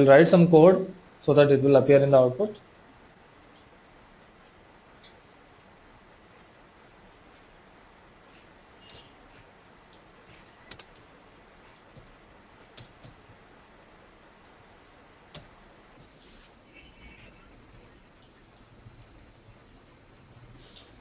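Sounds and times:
short soft hiss: 16.0 - 17.4, 20.5 - 21.0.

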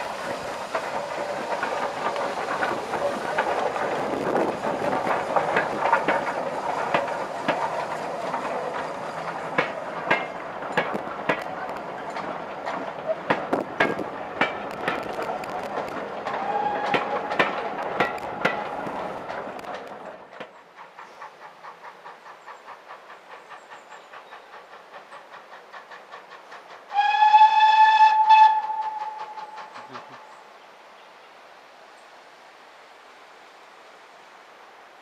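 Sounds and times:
steam locomotive beat: 0.0 - 30.5
train wheels clicking over rail joints: 0.0 - 30.6
steam whistle: 16.4 - 17.1, 26.9 - 30.0.

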